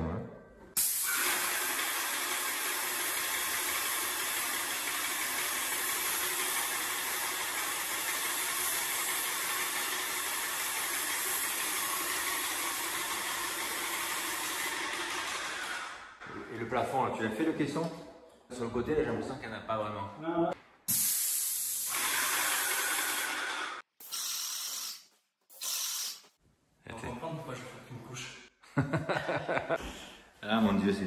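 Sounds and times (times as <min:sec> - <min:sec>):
paint spray gun hissing: 0:00.8 - 0:14.9, 0:20.9 - 0:26.4.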